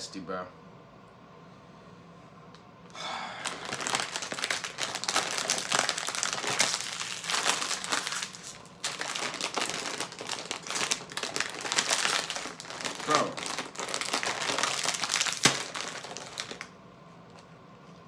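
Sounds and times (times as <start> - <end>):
plastic bag crinkling and tearing: 3.3 - 16.7.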